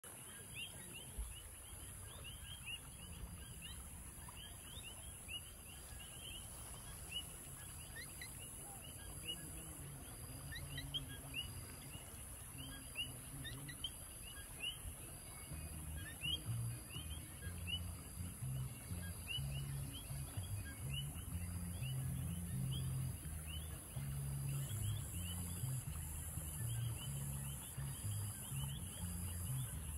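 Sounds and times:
river flowing over gravel: 0:00.0 - 0:20.6.

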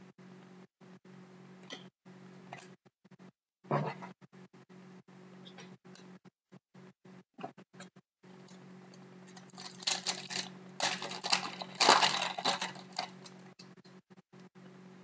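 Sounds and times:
foil wrapper tearing and crinkling: 0:09.3 - 0:13.5.

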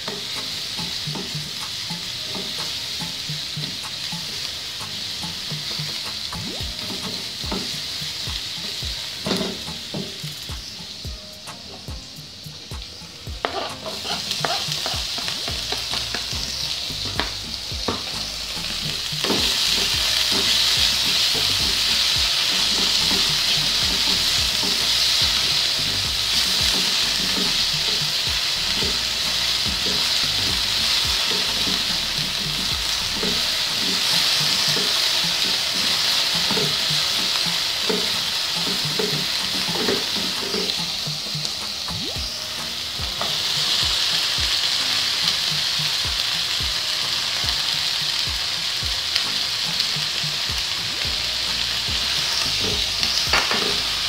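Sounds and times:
onion sizzling in hot oil: 0:00.0 - 0:54.0
spatula scraping a wok: 0:13.4 - 0:16.8.

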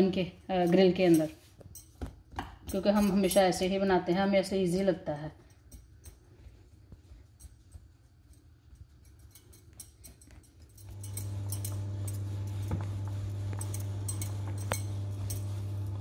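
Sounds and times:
low electrical hum: 0:00.0 - 0:16.0
rolling pin rolling dough: 0:10.9 - 0:16.0.

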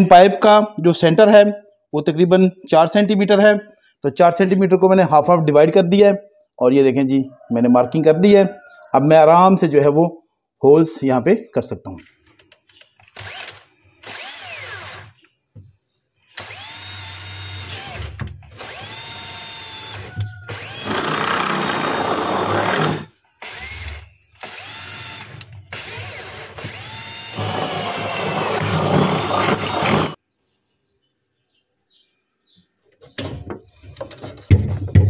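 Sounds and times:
cordless drill whining: 0:13.0 - 0:15.2, 0:16.3 - 0:30.2
drill bit cutting plastic: 0:13.0 - 0:15.2, 0:16.3 - 0:30.2.

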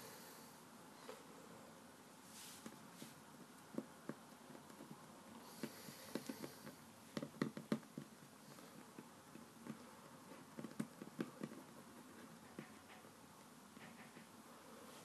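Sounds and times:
fingers patting dough on table: 0:03.4 - 0:14.3.

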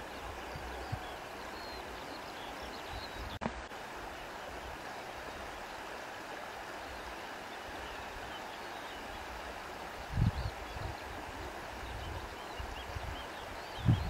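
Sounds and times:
flowing water rushing: 0:00.0 - 0:14.0.

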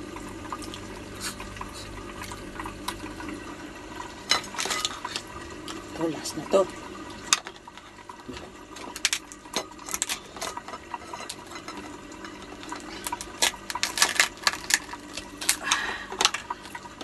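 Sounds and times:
crab shell cracking: 0:08.8 - 0:10.5, 0:12.6 - 0:16.6.

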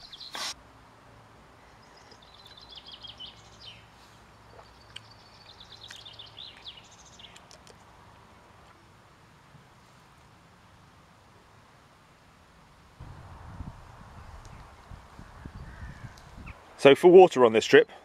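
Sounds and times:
songbirds twittering: 0:00.0 - 0:00.5, 0:01.6 - 0:07.6, 0:14.2 - 0:16.8
faint outdoor hush: 0:00.0 - 0:18.0.

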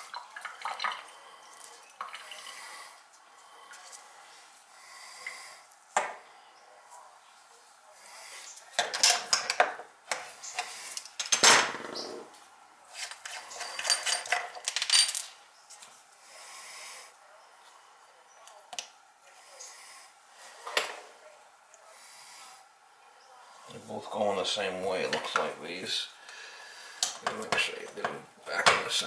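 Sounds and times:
small metal parts clinking: 0:13.2 - 0:15.4.

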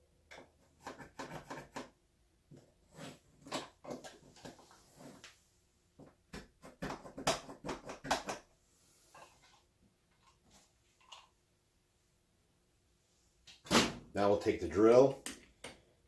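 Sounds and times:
pencil scratching on wood: 0:00.6 - 0:01.9.

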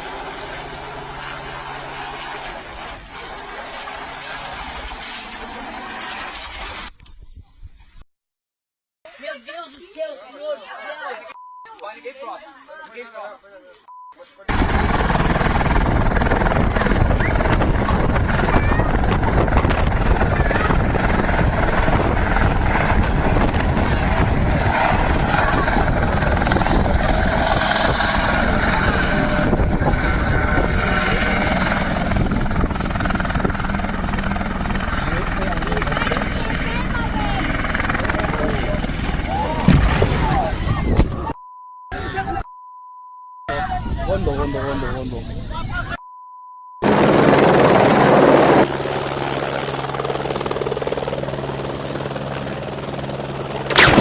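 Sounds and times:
helicopter rotor and engine: 0:00.0 - 0:06.7, 0:14.5 - 0:40.8, 0:46.8 - 0:54.0.

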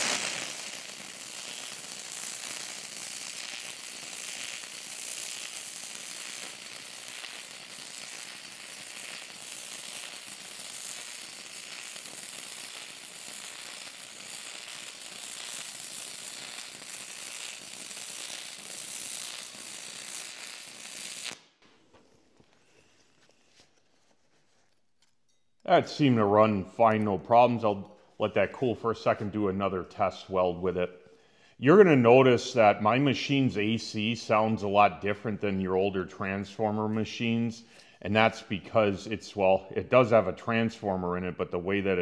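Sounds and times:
buzzing welding arc: 0:00.0 - 0:21.6.

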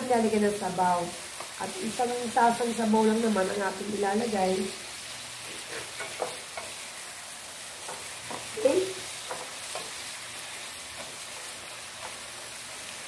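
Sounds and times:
vegetables sizzling in a pan: 0:00.0 - 0:13.0
wooden spatula scraping pan: 0:05.4 - 0:06.8.

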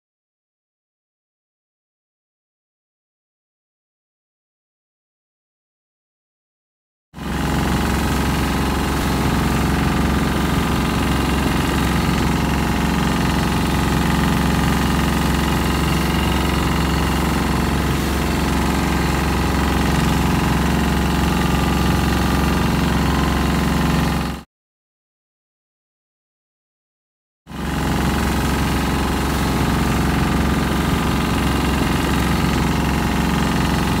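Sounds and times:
boat engine droning: 0:07.2 - 0:24.4, 0:27.5 - 0:34.0.

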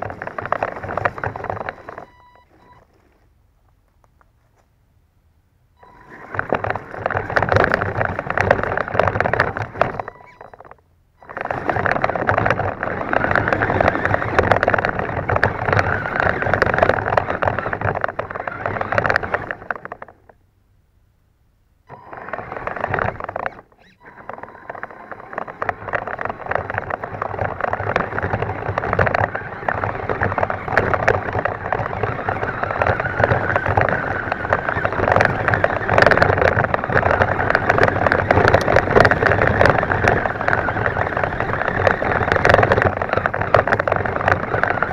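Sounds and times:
toy truck drivetrain running: 0:00.0 - 0:03.0, 0:05.8 - 0:20.4, 0:21.9 - 0:44.9.

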